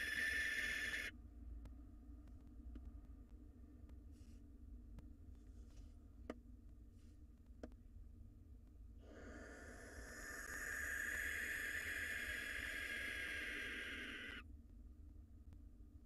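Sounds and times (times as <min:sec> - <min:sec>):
owl hissing: 0:00.0 - 0:01.1, 0:09.0 - 0:14.4.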